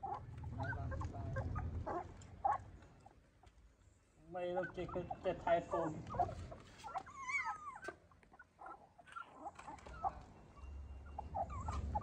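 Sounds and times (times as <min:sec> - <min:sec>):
puppy whining: 0:00.0 - 0:03.3, 0:04.4 - 0:12.0.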